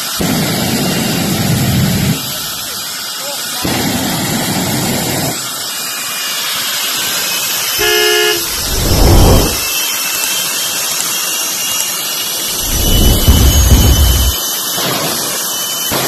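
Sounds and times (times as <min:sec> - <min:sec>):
jet engine hissing and rumbling: 0:07.5 - 0:09.7, 0:12.4 - 0:14.4
car horn blast: 0:07.8 - 0:09.6.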